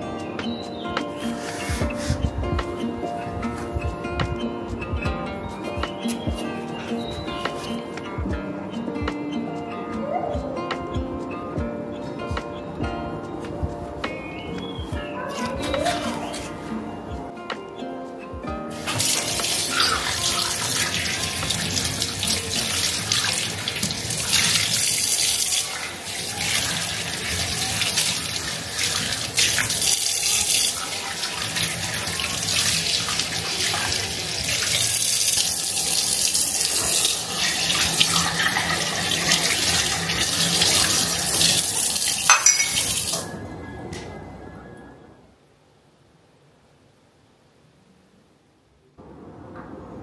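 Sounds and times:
tap running into sink: 0:18.8 - 0:25.6, 0:42.2 - 0:43.2
glass cups knocking: 0:42.3 - 0:43.1.

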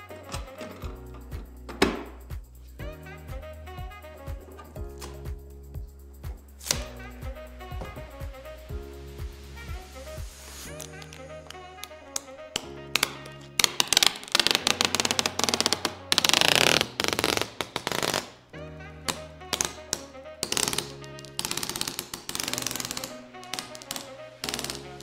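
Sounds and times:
background music with low tones: 0:00.0 - 0:25.0
plastic film peeling: 0:10.6 - 0:18.4, 0:19.1 - 0:25.0.

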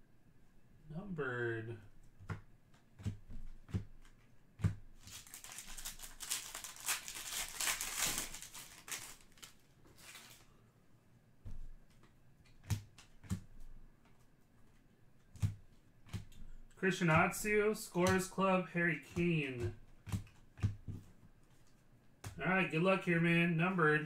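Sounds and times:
cards tapping: 0:02.1 - 0:09.5, 0:11.5 - 0:14.3, 0:15.2 - 0:18.4, 0:19.0 - 0:22.5
foil wrapper crinkling and tearing: 0:05.0 - 0:10.5.

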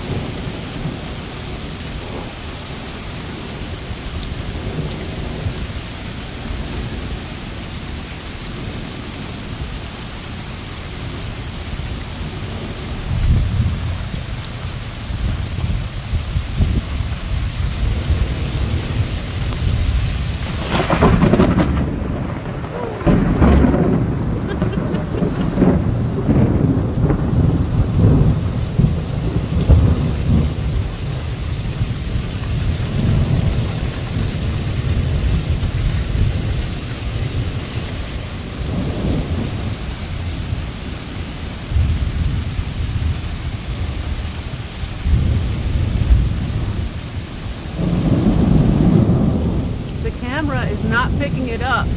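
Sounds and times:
steady rain: 0:00.0 - 0:51.9
thunder rumbling: 0:12.2 - 0:40.5, 0:45.0 - 0:51.9.

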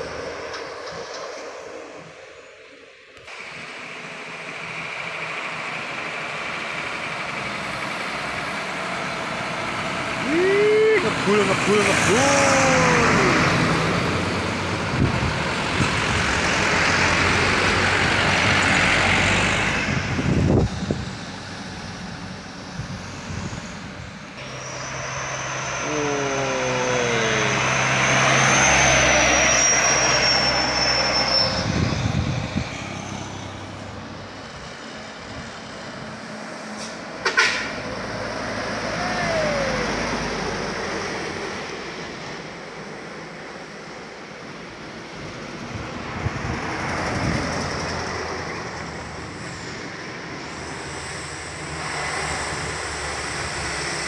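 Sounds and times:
thin high whistle: 0:24.4 - 0:32.0.

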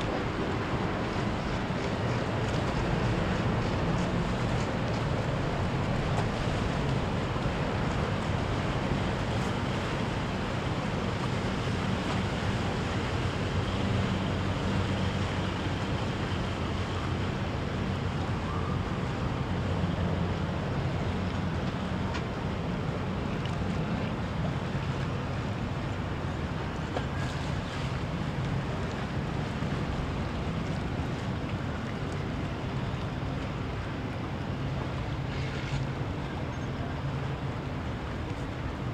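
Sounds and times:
wind noise on microphone: 0:00.0 - 0:16.6
motorboat engines running: 0:00.0 - 0:38.9
waves washing: 0:00.0 - 0:38.9.

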